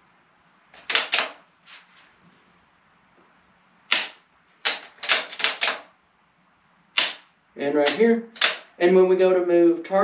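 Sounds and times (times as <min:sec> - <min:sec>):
trigger snapping: 0:03.9 - 0:05.8, 0:07.0 - 0:07.3, 0:07.9 - 0:08.7
rifle bolt clacking: 0:07.9 - 0:08.7.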